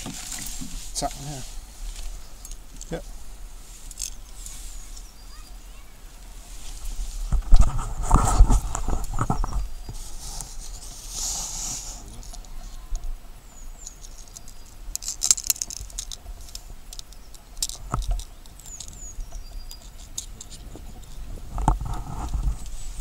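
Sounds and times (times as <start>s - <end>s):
small clicks and knocks: 12.2s - 22.8s.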